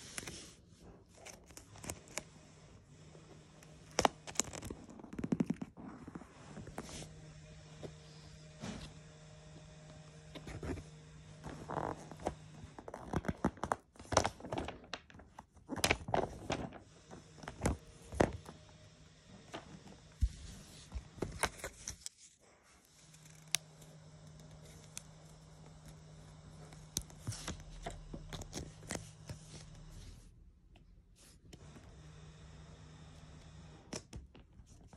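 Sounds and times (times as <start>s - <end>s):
paper stickers crinkling: 0.0s - 2.3s, 3.6s - 8.7s, 10.3s - 30.2s.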